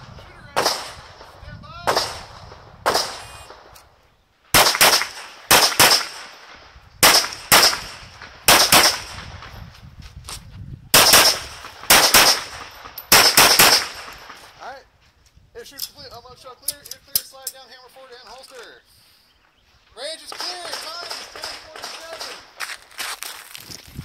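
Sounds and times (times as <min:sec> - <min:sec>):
pistol shots: 0:00.6 - 0:03.8, 0:04.5 - 0:09.3, 0:10.9 - 0:14.5, 0:20.3 - 0:22.6.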